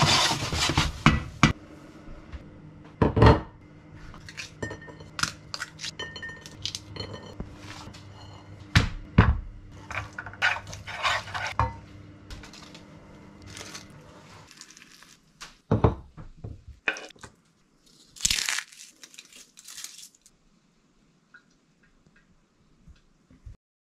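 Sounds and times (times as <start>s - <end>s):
paper crinkling: 13.4s - 15.4s, 17.8s - 20.3s
pea pods snapping: 18.2s - 20.2s.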